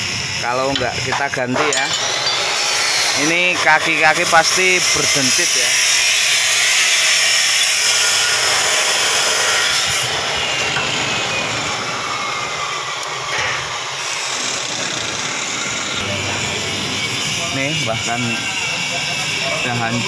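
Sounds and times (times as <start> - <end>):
machine whirring: 0.0 - 20.0.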